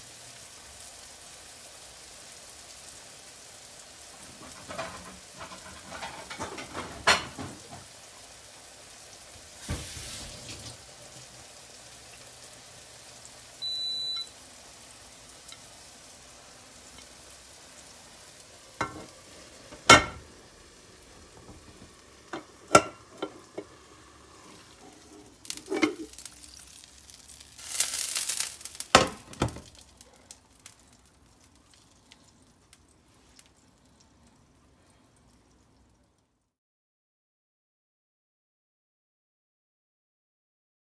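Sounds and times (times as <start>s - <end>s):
pancake frying in a pan: 0.0s - 36.5s
cooktop electronic beep: 13.6s - 14.4s
plate knocking on a pan: 18.8s - 19.1s, 19.7s - 20.2s, 21.4s - 23.7s.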